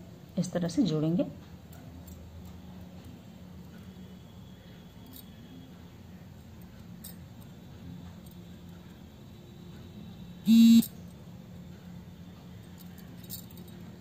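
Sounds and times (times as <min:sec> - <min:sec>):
low steady hum: 0:00.0 - 0:14.0
loud buzzing tone: 0:10.4 - 0:11.0.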